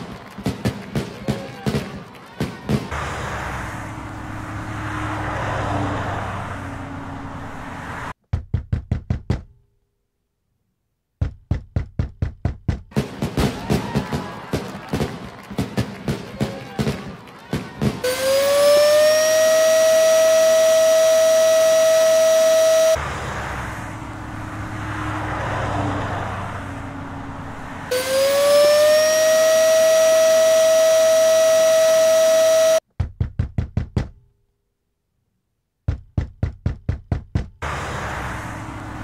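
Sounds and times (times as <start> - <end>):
vehicle passing: 2.9 - 8.2, 18.0 - 32.8, 37.6 - 39.0
knocking on a door: 8.3 - 9.5, 11.2 - 12.9, 33.0 - 34.2, 35.9 - 37.6.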